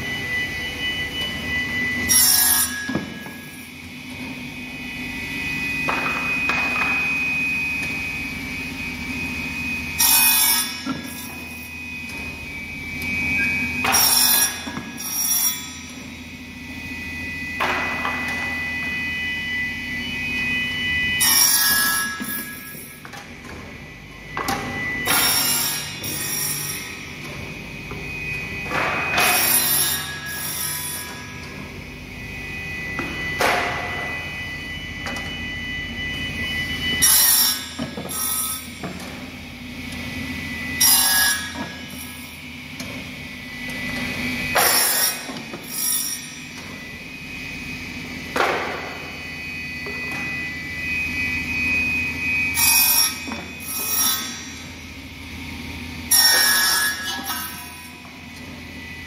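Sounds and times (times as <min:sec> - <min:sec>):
saw and conveyor humming: 0:00.0 - 0:59.0
saw cutting boards: 0:02.0 - 0:03.7, 0:09.9 - 0:11.7, 0:13.0 - 0:16.2, 0:20.9 - 0:23.1, 0:24.5 - 0:27.2, 0:28.0 - 0:31.6, 0:36.9 - 0:39.0, 0:40.7 - 0:42.4, 0:43.7 - 0:46.6, 0:52.4 - 0:54.6, 0:56.1 - 0:58.2.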